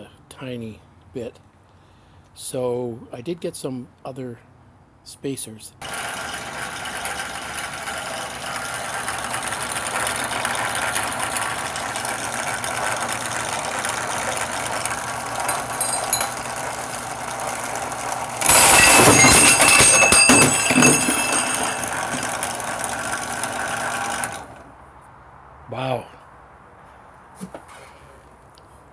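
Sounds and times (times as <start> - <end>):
drill press motor humming: 5.8 - 24.6
harsh metal cutting: 5.8 - 24.6.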